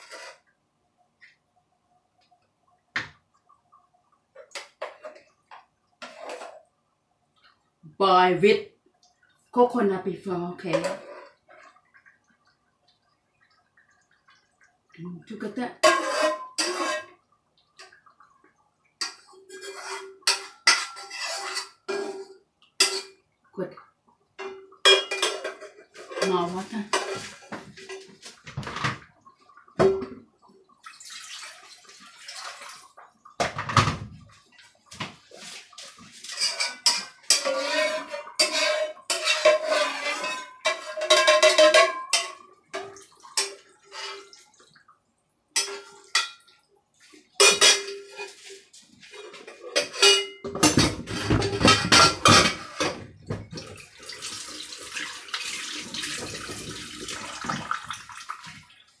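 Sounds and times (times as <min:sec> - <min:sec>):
metal spoon scraping frying pan: 0:00.0 - 0:00.5, 0:10.7 - 0:11.7, 0:15.8 - 0:17.2, 0:19.0 - 0:23.2, 0:24.4 - 0:28.2, 0:36.1 - 0:42.4, 0:43.4 - 0:44.4, 0:47.4 - 0:53.0
water pouring into pan: 0:24.6 - 0:33.9, 0:50.6 - 0:59.0
liquid bubbling: 0:53.1 - 0:59.0.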